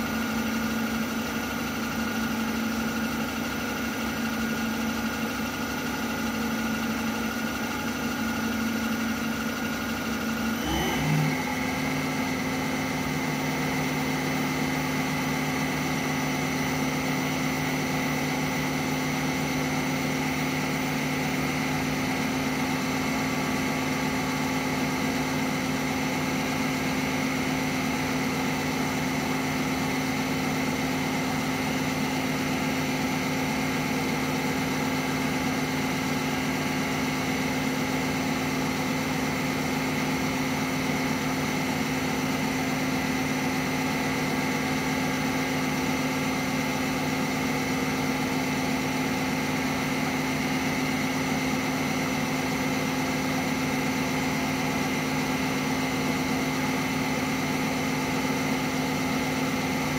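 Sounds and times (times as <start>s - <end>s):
milling machine motor hum: 3.0s - 59.9s
high machine whine: 7.6s - 30.5s.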